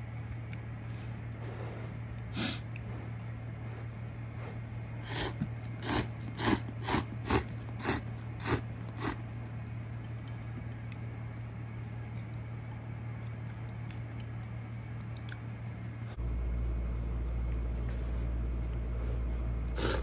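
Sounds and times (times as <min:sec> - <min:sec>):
steady low hum: 0:00.0 - 0:20.0
noodles being slurped: 0:05.0 - 0:09.2, 0:19.7 - 0:20.0.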